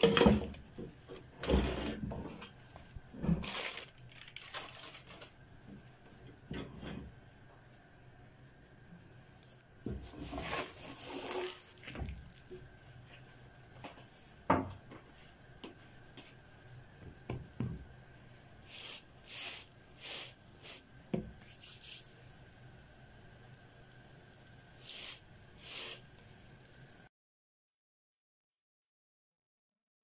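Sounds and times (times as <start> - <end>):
hand rubbing crisp crust: 9.5 - 12.4, 18.7 - 20.8, 21.4 - 22.2, 24.8 - 26.2
flatbread scraping in metal pan: 10.0 - 11.7.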